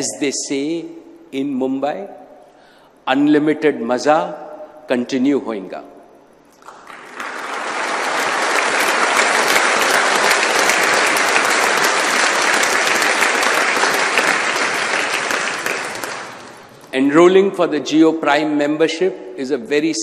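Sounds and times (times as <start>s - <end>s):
large audience applauding: 6.6s - 16.9s.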